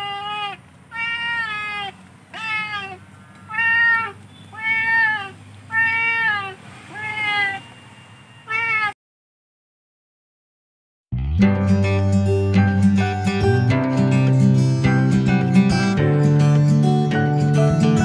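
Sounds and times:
cat meowing: 0.0s - 7.8s, 8.4s - 9.0s.

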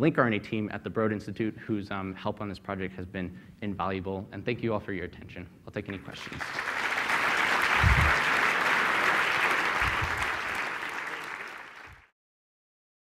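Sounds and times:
audience applauding: 5.9s - 12.1s
low thumps: 7.8s - 8.2s.

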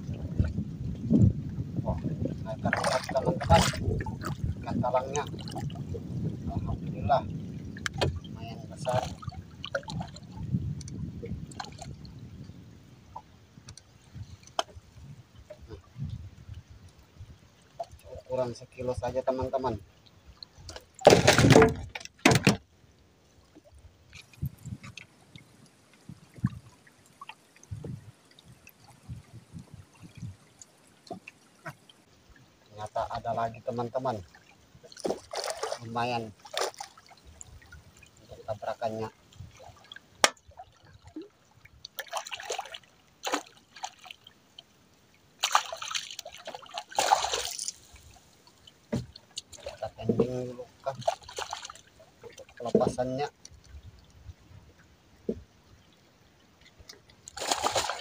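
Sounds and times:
small knocks and low thumps: 0.0s - 12.1s, 20.7s - 22.7s, 27.7s - 28.0s, 48.9s - 51.2s, 55.2s - 55.5s
water dripping and trickling: 0.0s - 22.3s, 23.4s - 44.8s, 45.4s - 56.0s.

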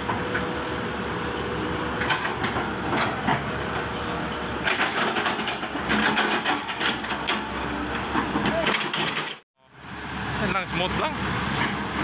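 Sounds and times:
excavator engine and hydraulics hum: 0.0s - 12.0s.

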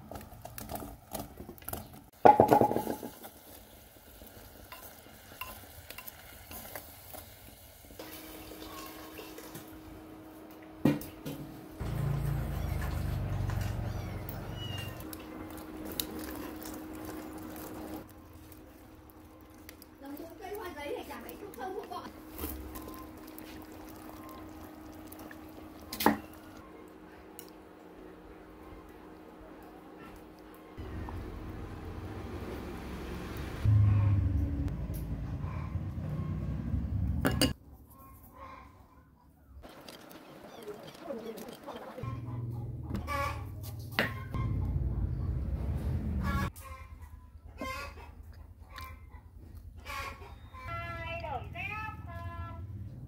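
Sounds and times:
light sizzling: 2.2s - 10.6s, 11.8s - 27.7s
water pouring into pot: 15.8s - 26.6s.

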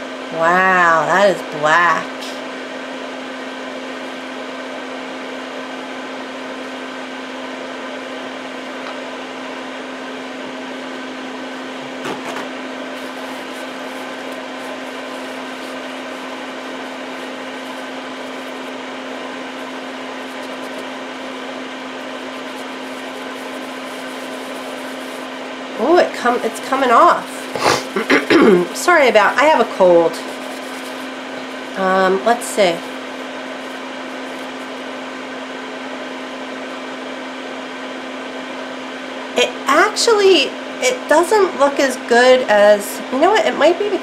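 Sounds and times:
small electric motor humming: 10.0s - 36.5s.

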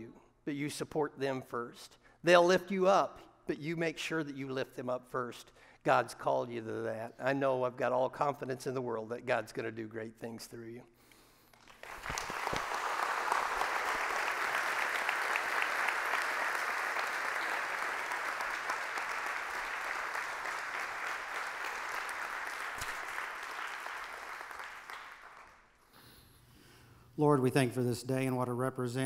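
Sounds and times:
congregation applauding: 11.5s - 25.8s.

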